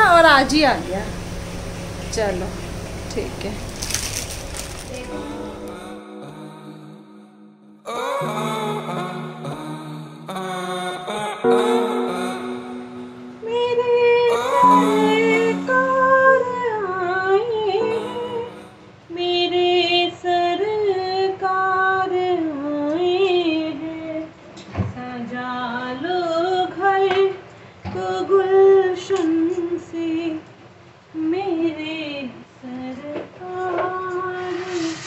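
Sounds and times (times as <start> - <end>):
held instrumental backing: 4.9 - 10.5
woman singing slow song: 4.9 - 35.0.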